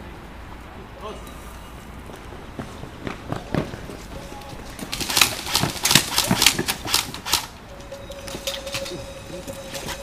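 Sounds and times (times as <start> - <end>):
airsoft rifles firing: 4.9 - 7.6
steady thin tone: 7.7 - 10.0.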